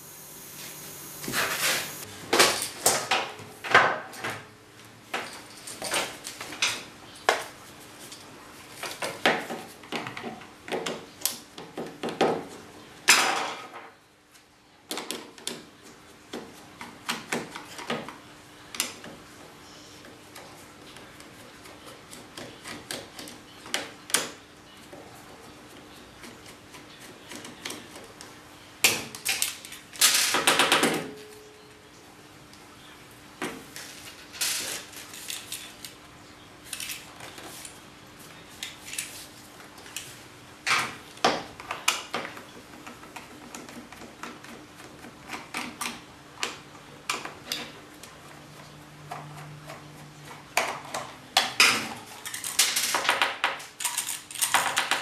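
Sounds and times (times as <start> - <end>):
faint steady hum: 0.0 - 2.4.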